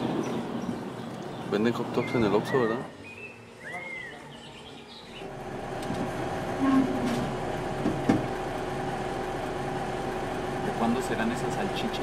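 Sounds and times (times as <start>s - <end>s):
machine hum: 5.2s - 12.0s.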